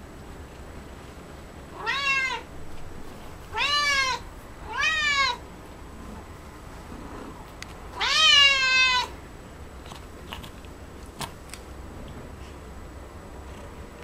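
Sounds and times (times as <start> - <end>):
cat meowing: 1.8 - 2.5, 3.5 - 5.4, 8.0 - 9.2.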